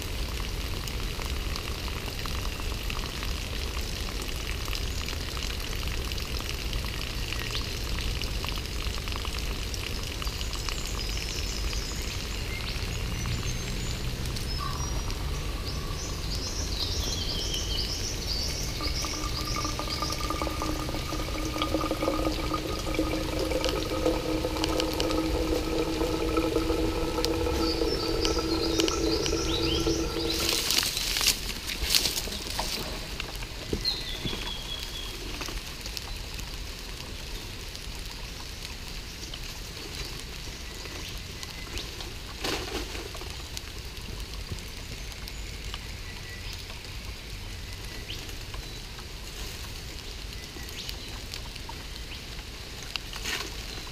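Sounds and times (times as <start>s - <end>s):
water trickling into container: 0.0s - 32.8s
steady tones: 18.1s - 31.0s.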